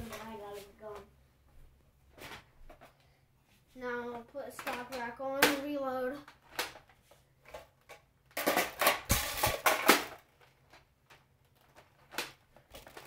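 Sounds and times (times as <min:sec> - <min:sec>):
plastic toy blaster clacks: 0:04.6 - 0:06.9, 0:07.5 - 0:13.0.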